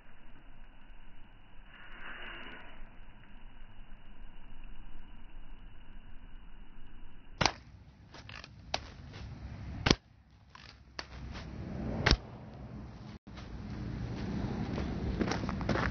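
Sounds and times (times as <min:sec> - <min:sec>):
bb gun pops: 0:07.4 - 0:09.0, 0:12.0 - 0:12.3.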